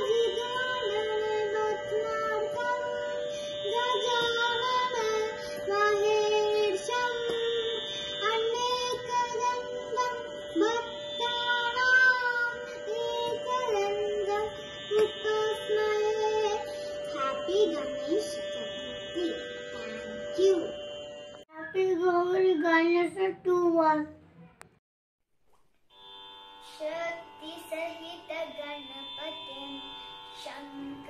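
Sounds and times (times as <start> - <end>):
girl singing devotional song: 0.0 - 20.8, 21.5 - 24.1, 26.6 - 31.0
steady drone tone: 0.0 - 23.6, 26.0 - 31.0.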